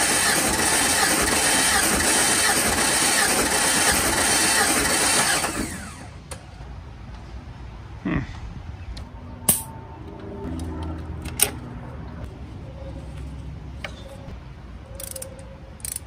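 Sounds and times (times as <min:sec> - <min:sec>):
starter cranking engine: 0:00.0 - 0:06.1.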